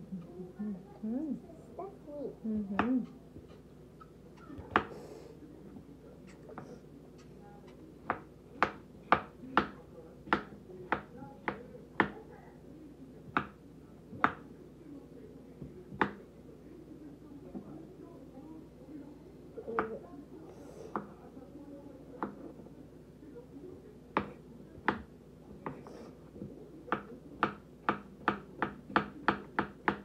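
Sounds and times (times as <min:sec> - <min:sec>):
knife tapping on wooden board: 0:26.9 - 0:30.0.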